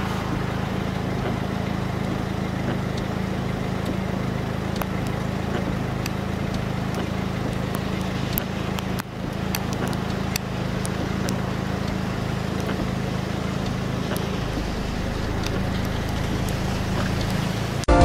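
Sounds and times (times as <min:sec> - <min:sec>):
wind and rain hiss: 0:00.0 - 0:17.8
raindrops ticking: 0:00.0 - 0:17.9
engine idling: 0:00.0 - 0:18.0.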